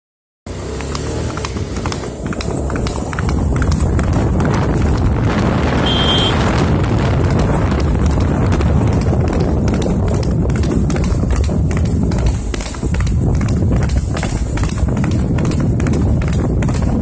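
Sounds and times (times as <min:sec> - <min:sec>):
hooves clattering on pavement: 0:00.5 - 0:17.0
short high beep: 0:05.8 - 0:06.4.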